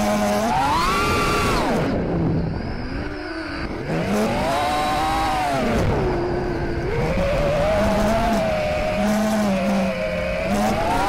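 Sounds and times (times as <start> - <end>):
drone motors whining: 0.0 - 11.0.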